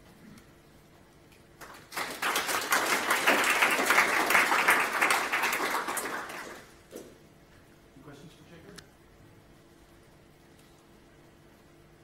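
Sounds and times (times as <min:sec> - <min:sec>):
audience applauding: 0:01.6 - 0:06.8.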